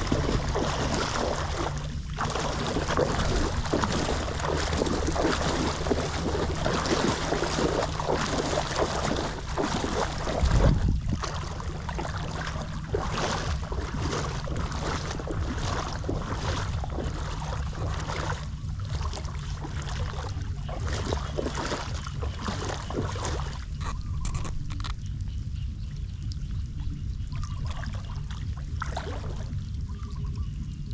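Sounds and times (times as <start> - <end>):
light rain on water: 0.0 - 23.9
wind buffeting the microphone: 0.0 - 30.9.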